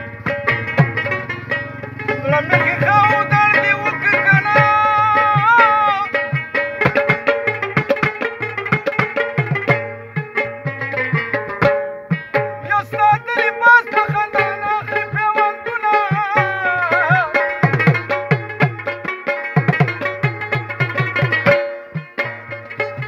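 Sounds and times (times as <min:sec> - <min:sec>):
plucked lute runs: 0:00.0 - 0:23.0
man singing: 0:01.7 - 0:06.4, 0:12.6 - 0:18.2
clay pot drummed by hand: 0:04.3 - 0:13.2, 0:16.0 - 0:23.0.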